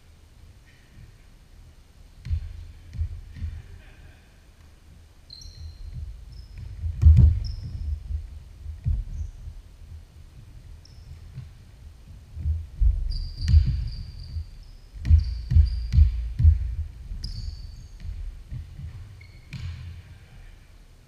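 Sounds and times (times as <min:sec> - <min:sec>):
basketball dribbling on wood floor: 0:02.2 - 0:03.6, 0:05.6 - 0:09.6, 0:12.3 - 0:20.2
sneakers squeaking: 0:02.2 - 0:04.0, 0:05.2 - 0:09.6, 0:10.7 - 0:20.6.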